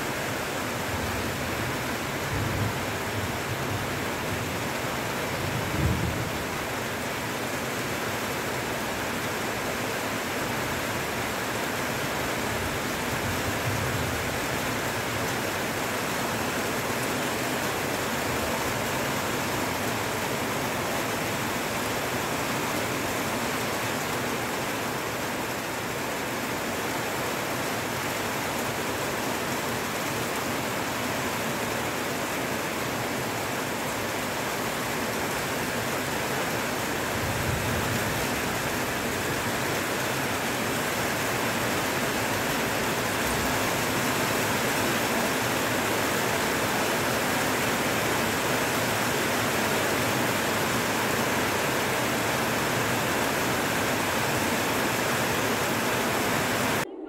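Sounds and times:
heavy rain on foliage: 0.0 - 56.9.

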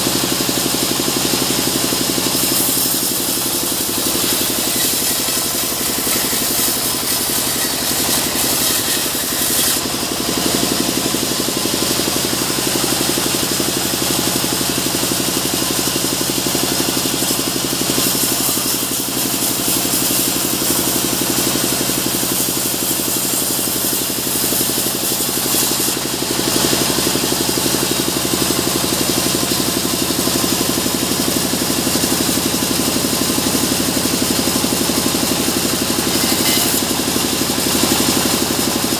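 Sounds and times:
band saw cutting log: 0.0 - 38.9
saw blade hissing in wood: 2.1 - 10.6, 17.3 - 26.0, 35.9 - 37.2.

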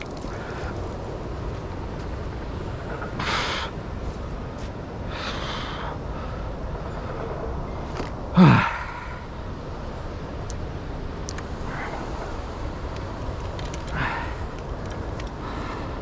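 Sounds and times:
man grunting exhale: 8.4 - 9.2.

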